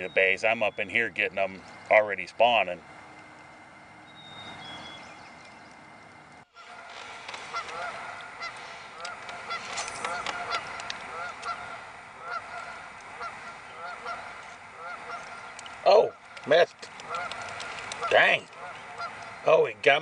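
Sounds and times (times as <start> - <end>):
geese honking: 0.0 - 20.0.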